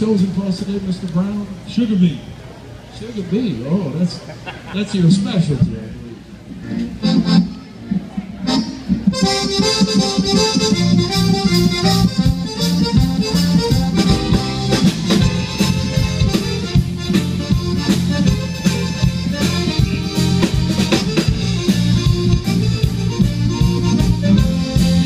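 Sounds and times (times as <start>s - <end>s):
band playing: 0.0s - 25.0s
button accordion: 6.5s - 25.0s
fiddle: 6.6s - 25.0s.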